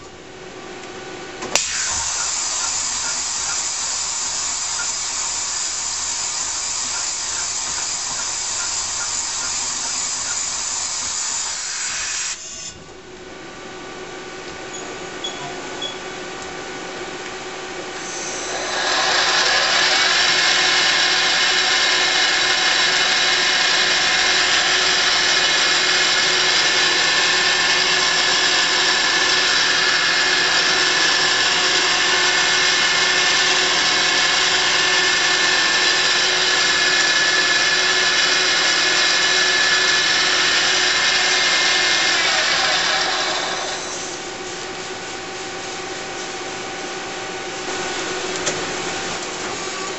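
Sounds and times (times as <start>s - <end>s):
lathe spindle whine: 1.6s - 12.8s, 17.8s - 44.4s.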